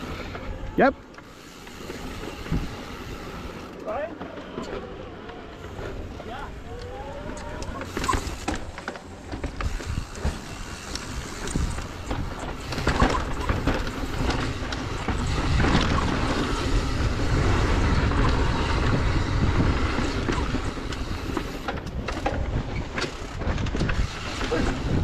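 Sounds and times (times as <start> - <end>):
bike rattling: 0.0 - 25.0
tyres rolling over dirt and rock: 1.2 - 25.0
wind rumbling on microphone: 5.6 - 25.0.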